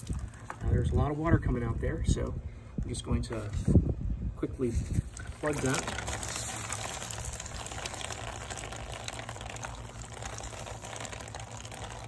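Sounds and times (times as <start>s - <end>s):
water spraying from pipe: 0.0s - 0.6s, 5.1s - 12.0s.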